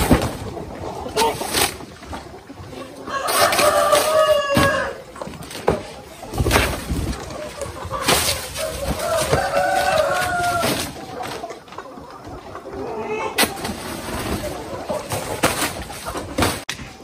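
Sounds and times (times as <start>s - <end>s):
rooster crowing: 3.1s - 5.0s, 9.0s - 10.9s.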